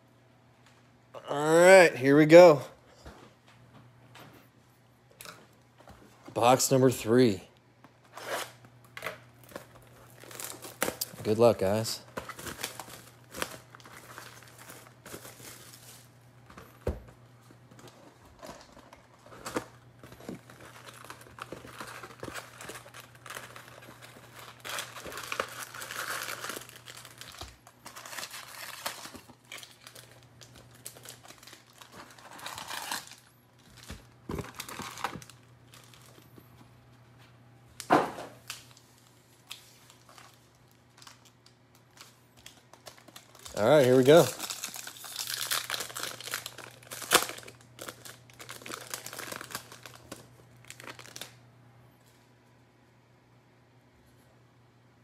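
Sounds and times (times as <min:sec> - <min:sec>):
foil packs rustling: 0:09.4 - 0:36.3, 0:38.5 - 0:51.3
plastic wrap crinkling: 0:09.4 - 0:36.3, 0:37.8 - 0:51.4.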